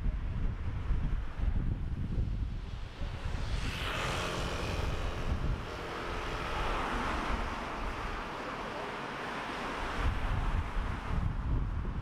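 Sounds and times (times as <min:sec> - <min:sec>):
wind rumble on microphone: 0:00.0 - 0:08.6, 0:09.3 - 0:12.0
vehicle passing close by: 0:02.6 - 0:11.5.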